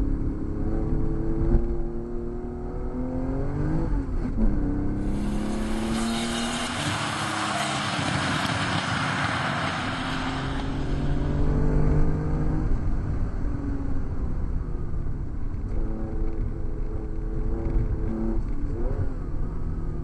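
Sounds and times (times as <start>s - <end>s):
car engine pulling: 4.9s - 12.1s
tyre spray hissing: 5.0s - 8.3s.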